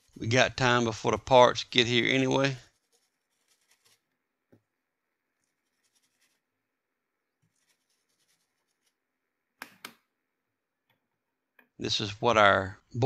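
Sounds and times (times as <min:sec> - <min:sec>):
brush scrubbing circuit board: 0:00.0 - 0:04.1, 0:05.4 - 0:06.5, 0:07.4 - 0:09.0.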